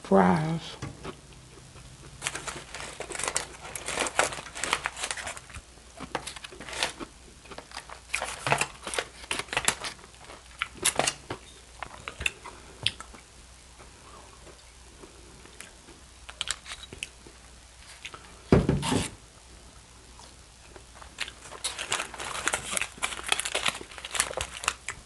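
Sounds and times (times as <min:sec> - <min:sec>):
aluminium foil crinkling: 0:02.1 - 0:12.5, 0:16.3 - 0:17.1, 0:20.9 - 0:25.0.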